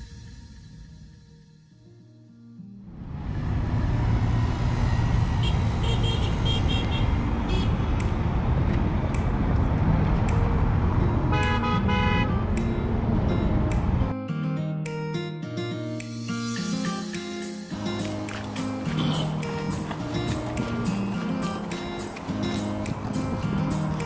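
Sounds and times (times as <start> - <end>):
heavy traffic on cobblestones: 2.9 - 14.1, 17.7 - 24.0
car horns honking: 5.4 - 7.9, 11.2 - 12.6, 18.8 - 20.2.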